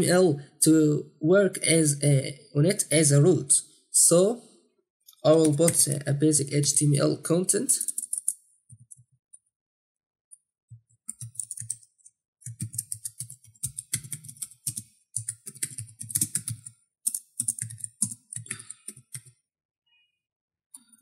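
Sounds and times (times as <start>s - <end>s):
keyboard typing: 5.3s - 6.0s, 7.8s - 9.1s, 10.7s - 19.4s.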